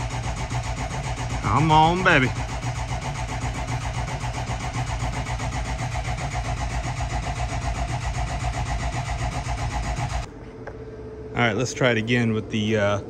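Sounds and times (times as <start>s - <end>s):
diesel engine cranking on starter: 0.0s - 10.3s.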